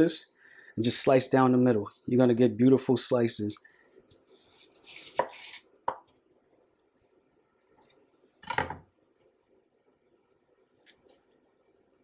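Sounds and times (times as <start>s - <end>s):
knife slicing onion: 4.0s - 6.2s.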